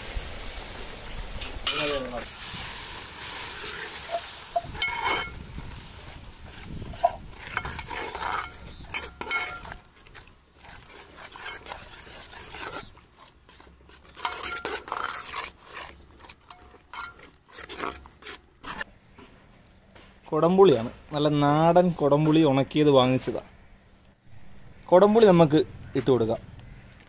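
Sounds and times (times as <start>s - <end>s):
ladle scraping metal pot: 3.2s - 5.4s, 6.4s - 18.9s.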